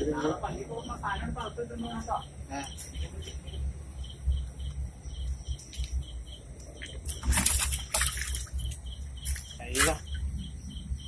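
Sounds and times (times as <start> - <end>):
crickets chirping: 0.0 - 11.0
fish and water splashing: 5.6 - 10.6.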